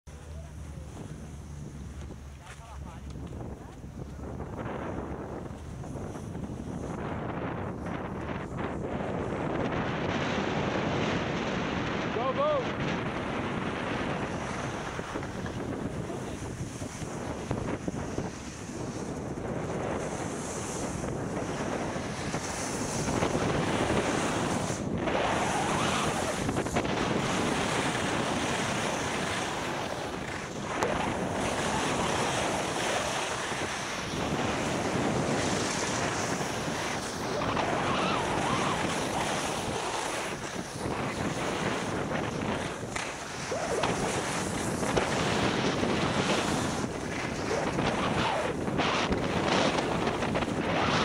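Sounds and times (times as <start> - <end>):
wind buffeting microphone: 0.1 - 51.0
skis hissing on snow: 20.0 - 48.7.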